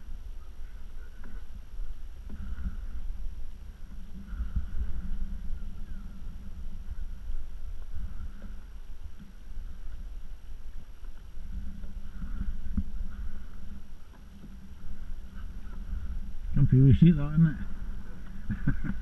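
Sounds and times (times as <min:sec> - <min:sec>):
low rumble: 0:00.0 - 0:19.0
waves slapping against kayak hull: 0:17.6 - 0:19.0.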